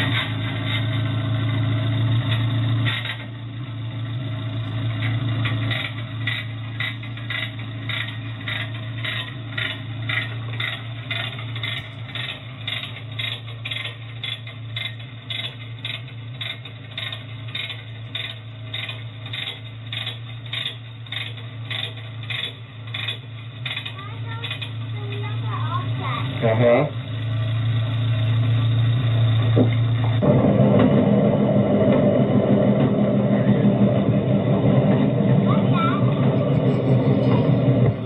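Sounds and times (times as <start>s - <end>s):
low hum: 0.0s - 38.0s
metallic ratchet clicks: 5.5s - 25.3s.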